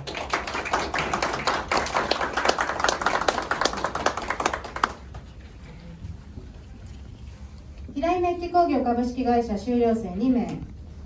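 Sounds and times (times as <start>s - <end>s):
audience clapping: 0.0s - 5.4s.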